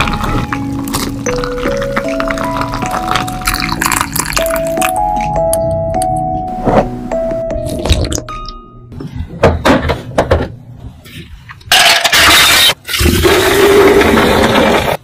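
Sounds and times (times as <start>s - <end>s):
fizzy drink pouring into pitcher: 2.9s - 4.8s.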